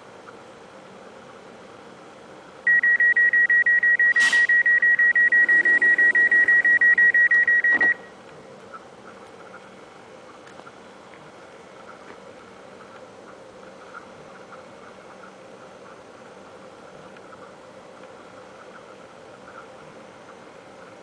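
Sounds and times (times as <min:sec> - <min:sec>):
electronic warning beeper: 0:02.7 - 0:08.2.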